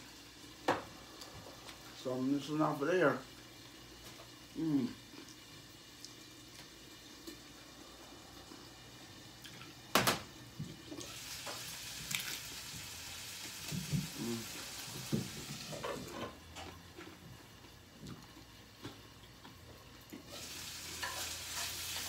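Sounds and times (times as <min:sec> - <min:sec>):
steady hiss: 0:00.0 - 0:16.2.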